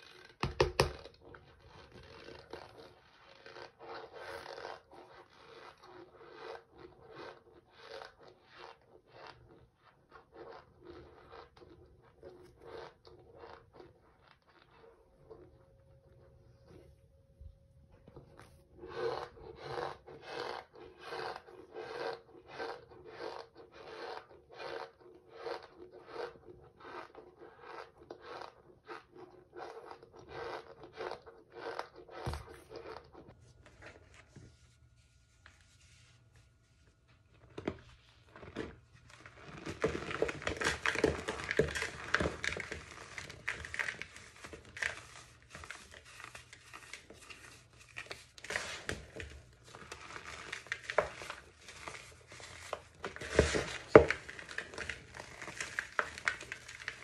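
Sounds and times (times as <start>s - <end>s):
baking soda crunching when squeezed: 38.6s - 57.0s
cornstarch crunching when squeezed: 39.2s - 57.0s.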